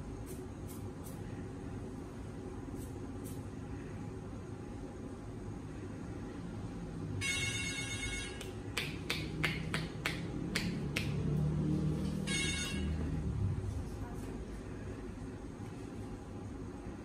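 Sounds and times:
short ringing tone: 7.2s - 8.4s, 12.2s - 13.1s
hand claps: 8.4s - 11.3s.

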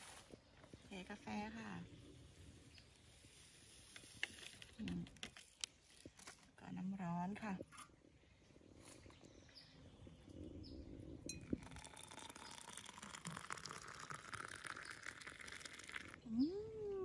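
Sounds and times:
water pouring into mug: 11.3s - 16.3s.

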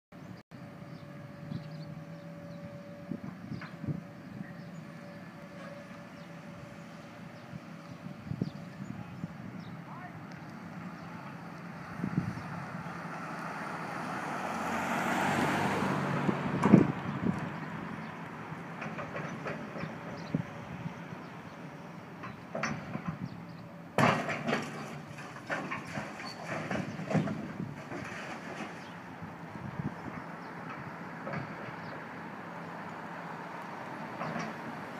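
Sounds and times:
excavator diesel engine running: 0.2s - 14.8s, 15.4s - 34.9s
building collapsing crash: 24.0s - 28.8s
falling debris clattering: 24.0s - 28.9s.

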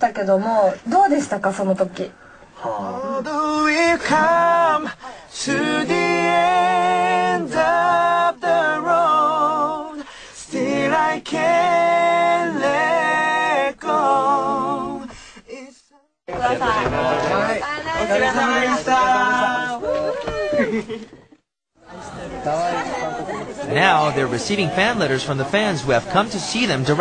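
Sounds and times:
men singing a cappella: 2.6s - 19.9s.

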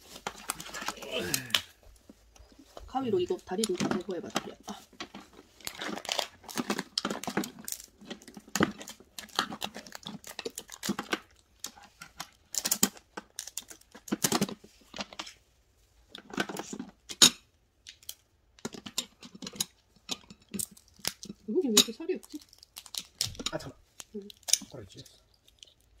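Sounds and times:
crab shell cracking and tearing: 0.2s - 1.8s, 5.1s - 15.3s, 17.8s - 26.0s
scissors snipping crab legs: 24.0s - 24.8s.

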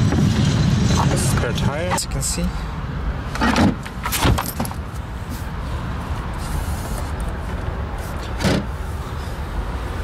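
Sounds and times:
steady low rumble: 0.0s - 3.3s.

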